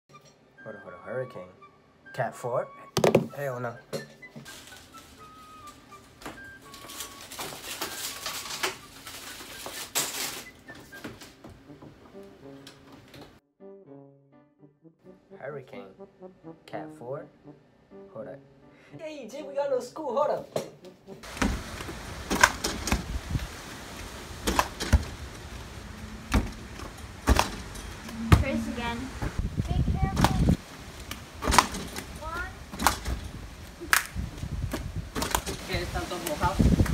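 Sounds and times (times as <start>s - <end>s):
plastic bottles rustling and crinkling: 4.4s - 11.4s
basketball hitting backboard and rim: 27.2s - 28.6s.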